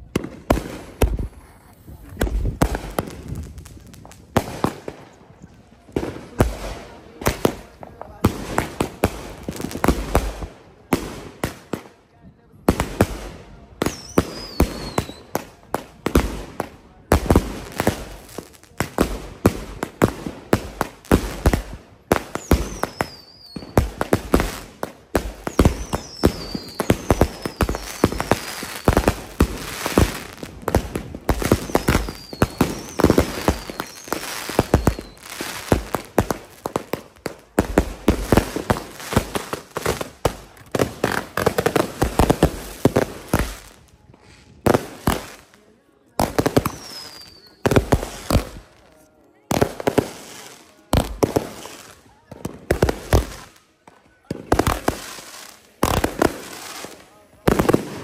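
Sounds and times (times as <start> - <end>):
firework whistles falling: 13.9 - 15.4, 22.3 - 23.8, 25.4 - 29.2, 31.5 - 35.5, 46.6 - 48.4.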